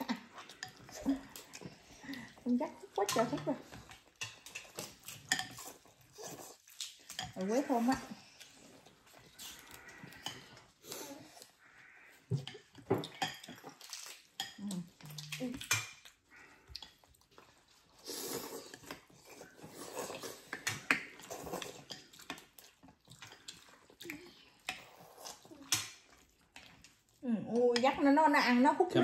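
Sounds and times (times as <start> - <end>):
utensils clinking on ceramic bowls: 2.9 - 6.0, 6.7 - 8.4
slurping noodles and broth: 4.3 - 7.0, 16.2 - 26.3.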